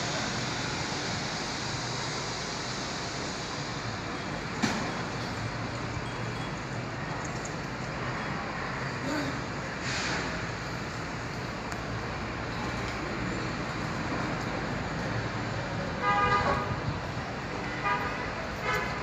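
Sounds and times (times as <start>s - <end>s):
street traffic: 0.0s - 19.0s
car horn: 16.0s - 16.8s, 17.5s - 19.0s.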